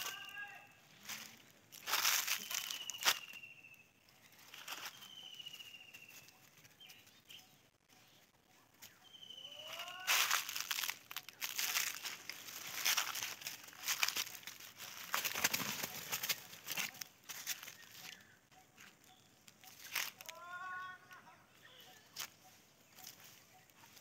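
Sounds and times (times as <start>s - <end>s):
dry leaves crunching underfoot: 0.0s - 3.4s, 4.2s - 7.1s, 8.8s - 18.9s, 19.7s - 20.6s
faint high trilled bird call: 1.8s - 12.1s, 16.9s - 24.0s.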